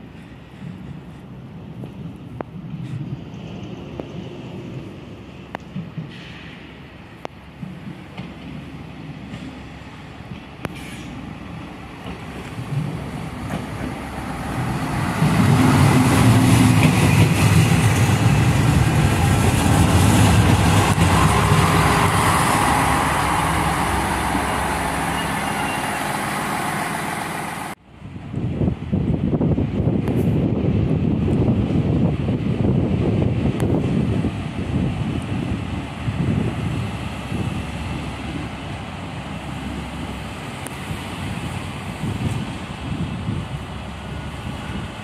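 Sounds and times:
diesel railcar engine hum: 0:00.0 - 0:45.0
wind on microphone: 0:27.9 - 0:39.1, 0:40.0 - 0:45.0.

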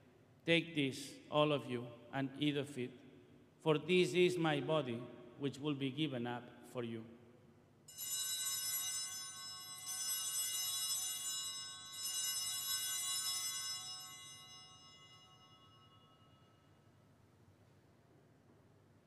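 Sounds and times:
altar bells ringing: 0:07.9 - 0:16.8.

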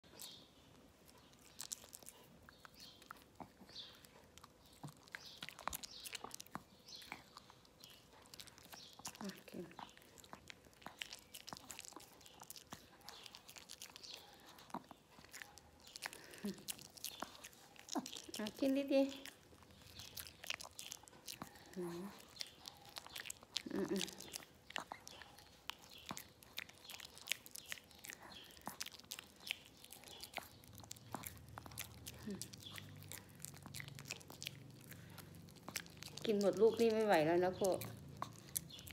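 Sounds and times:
dog chewing wet mouth clicks: 0:00.1 - 0:38.9.

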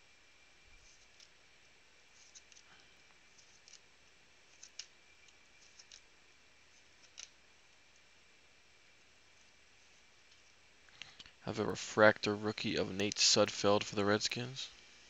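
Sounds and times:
cards clicking as flipped: 0:04.5 - 0:06.1.

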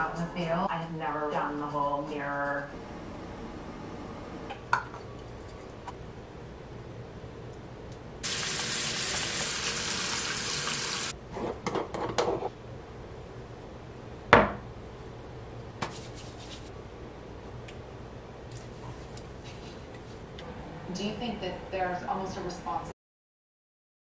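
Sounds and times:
sink tap running: 0:08.2 - 0:11.1.

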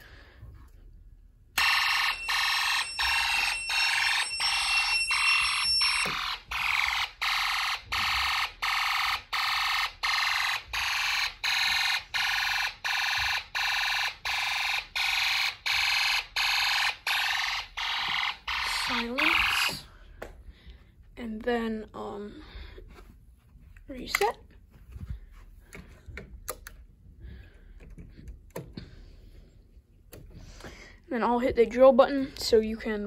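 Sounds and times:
pulsing alarm beeps from speaker: 0:01.6 - 0:19.9.

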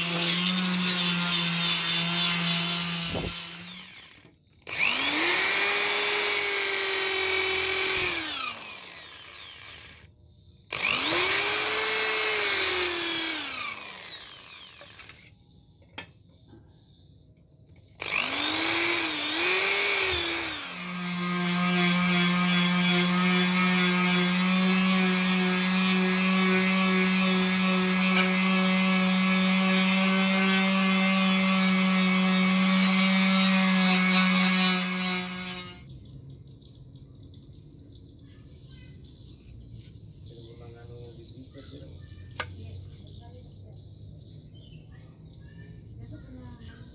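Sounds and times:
electric drill boring into wood: 0:00.0 - 0:10.1, 0:10.7 - 0:15.3, 0:18.0 - 0:35.9
palm sander humming: 0:00.0 - 0:10.1, 0:10.7 - 0:15.3, 0:18.0 - 0:35.9.

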